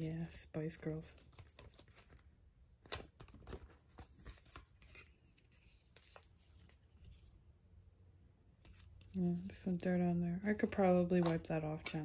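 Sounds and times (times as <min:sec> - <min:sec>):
paper rustling: 0:00.8 - 0:07.4.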